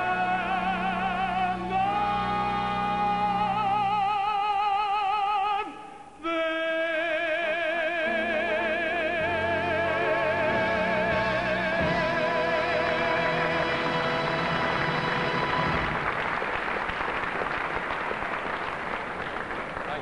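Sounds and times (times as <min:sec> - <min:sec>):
man singing with vibrato: 0:00.0 - 0:13.9
instrumental accompaniment: 0:08.1 - 0:16.2.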